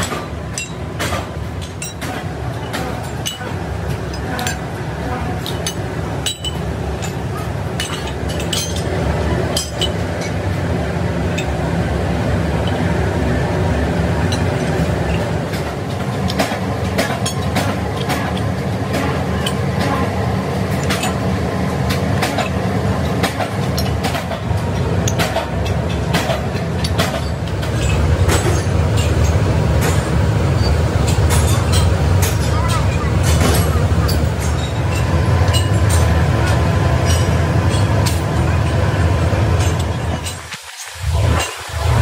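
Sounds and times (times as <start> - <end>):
workshop machinery rumble: 0.0 - 42.0.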